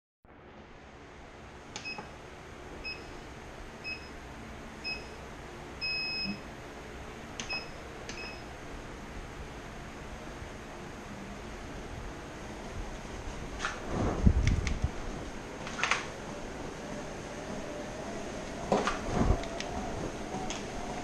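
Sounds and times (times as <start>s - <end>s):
treadmill console beeping: 1.8s - 2.1s, 2.8s - 3.2s, 3.8s - 4.2s, 4.8s - 5.2s, 5.8s - 6.5s, 7.4s - 8.5s.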